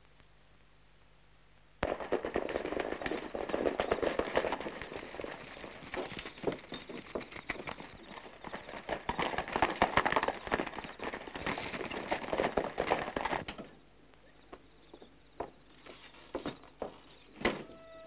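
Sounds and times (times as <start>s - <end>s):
scattered knocks: 1.8s - 13.5s
horse hooves galloping on dirt: 1.8s - 17.4s
door squeak: 16.4s - 18.0s.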